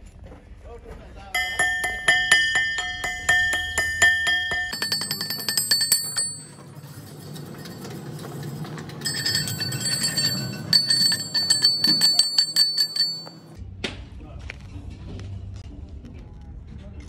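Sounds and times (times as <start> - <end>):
hammer striking steel: 1.4 - 13.6.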